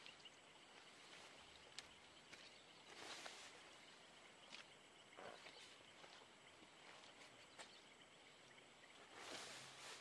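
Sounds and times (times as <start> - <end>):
faint outdoor hiss: 0.0 - 10.0
tarp rustling: 9.0 - 10.0.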